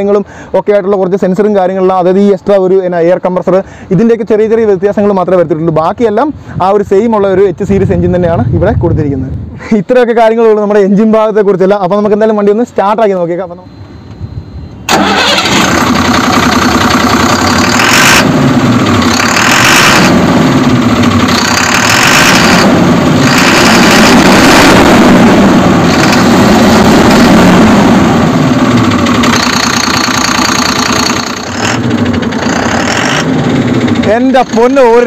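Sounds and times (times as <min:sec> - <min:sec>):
diesel truck engine starting: 0:14.7 - 0:35.0
truck engine revving: 0:14.9 - 0:35.0.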